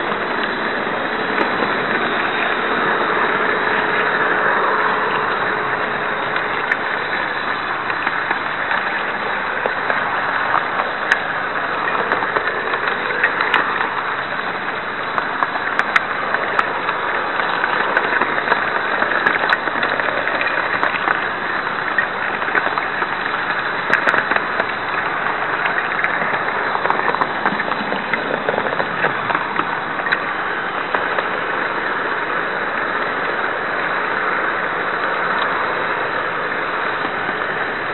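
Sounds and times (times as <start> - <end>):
model train whirring rumble: 0.0 - 37.9
sharp track clicks: 5.1 - 32.0.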